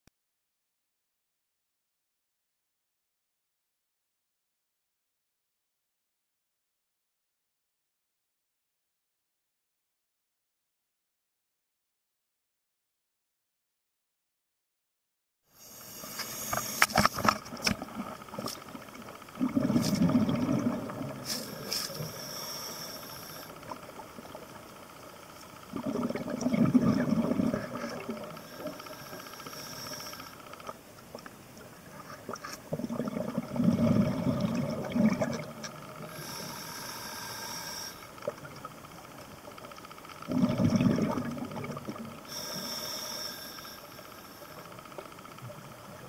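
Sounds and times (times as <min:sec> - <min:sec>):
regulator hiss on inhales: 0:15.5 - 0:17.3, 0:21.2 - 0:23.8, 0:28.2 - 0:30.6, 0:36.0 - 0:38.3, 0:42.2 - 0:44.8
exhaled bubbles gurgling underwater: 0:16.0 - 0:30.5, 0:31.1 - 0:46.0.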